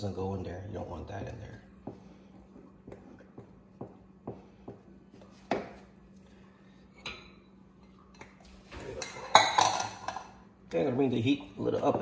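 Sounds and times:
faint steady hum: 0.0s - 12.0s
wooden spoon stirring in pot: 1.0s - 6.0s.

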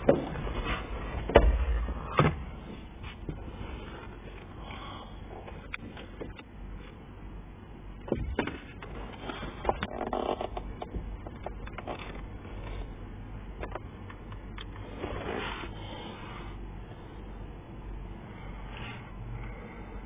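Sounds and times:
faint low hum: 0.0s - 20.0s
plastic scraping: 8.1s - 12.8s.

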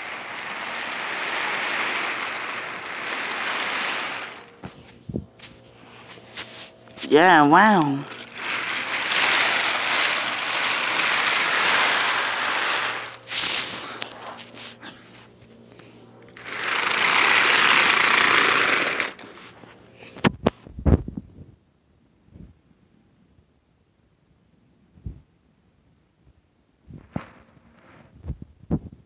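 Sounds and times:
toy train wheels rattling on track: 0.0s - 20.1s
sharp scrape: 0.4s - 20.2s.

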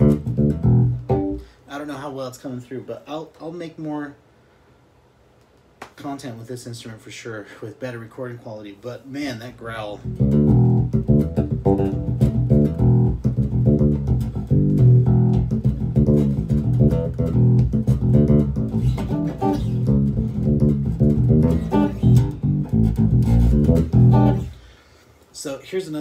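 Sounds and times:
electric bass plucked notes: 0.0s - 1.6s, 10.0s - 24.6s.

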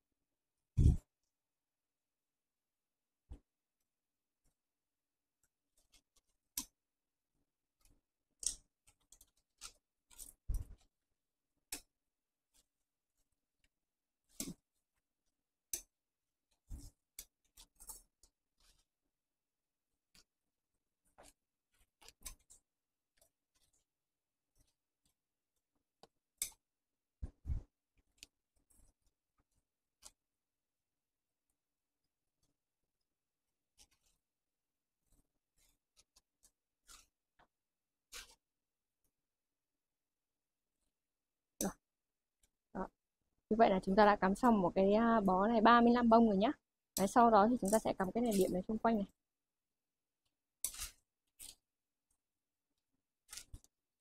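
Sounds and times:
clicks and scrapes of flowers: 5.4s - 6.8s, 7.7s - 11.0s, 11.6s - 19.2s, 19.9s - 30.3s, 33.5s - 38.6s, 47.0s - 49.2s, 50.5s - 52.2s, 53.2s - 53.8s.

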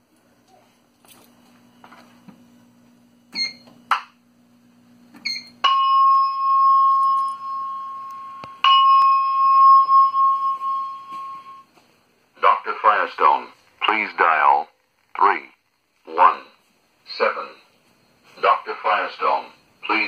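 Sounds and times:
short clicks and beeps: 3.3s - 3.7s
low hum: 4.2s - 11.7s
electronic chime tone: 5.3s - 11.7s.

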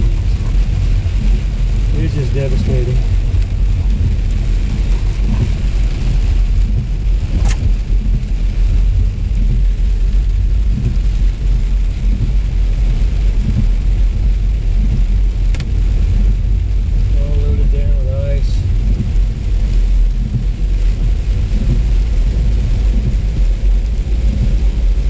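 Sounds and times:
car interior road and engine noise: 0.0s - 25.0s
sharp click: 7.4s - 7.7s.

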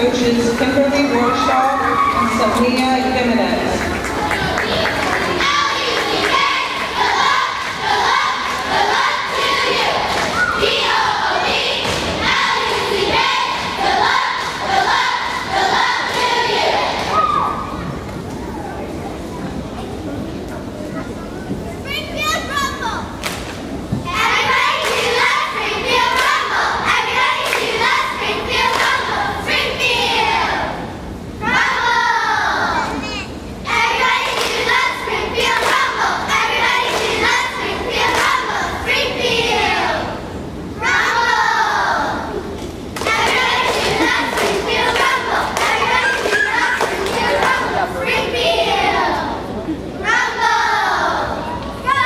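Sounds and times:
crowd shouting and cheering: 0.0s - 18.8s, 40.8s - 52.0s
children's voices: 0.0s - 52.0s.

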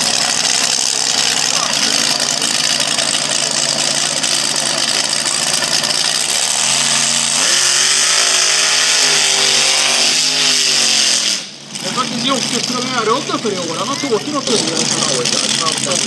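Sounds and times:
dragster engine idling: 0.0s - 16.0s.

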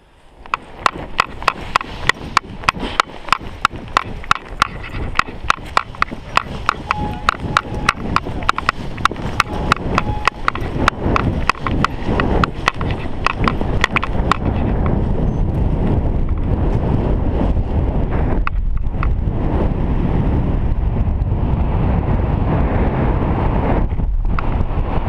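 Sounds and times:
running footsteps through grass: 0.0s - 19.0s
wind rush on microphone: 0.0s - 25.0s
sharp clicks: 0.4s - 15.0s.

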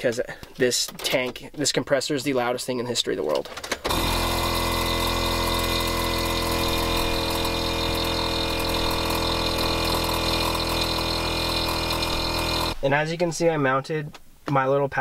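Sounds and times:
compressor electric motor drone: 3.9s - 12.8s.

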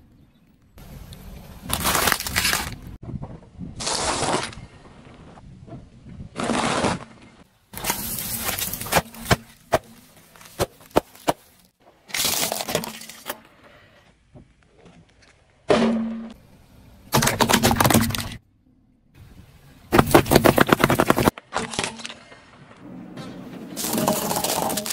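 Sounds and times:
plastic crunching and crackling: 1.7s - 3.0s, 7.8s - 11.5s, 23.8s - 24.9s
tyres crushing objects: 1.7s - 3.0s, 6.3s - 13.5s, 17.1s - 18.4s, 19.9s - 22.3s, 23.7s - 24.9s.

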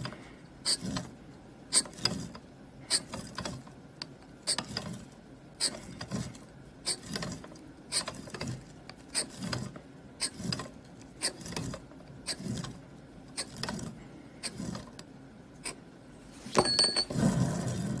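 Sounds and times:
scriber scraping metal plate: 0.0s - 1.1s, 1.7s - 3.6s, 4.5s - 15.0s.

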